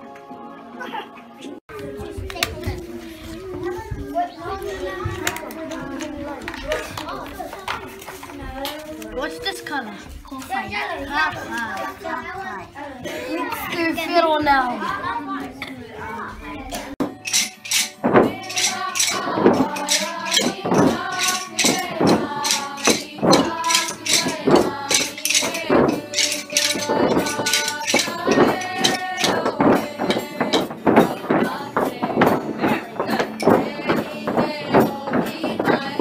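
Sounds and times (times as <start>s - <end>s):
children singing: 0.0s - 9.2s, 15.6s - 36.0s
wooden sticks clacking: 17.0s - 36.0s.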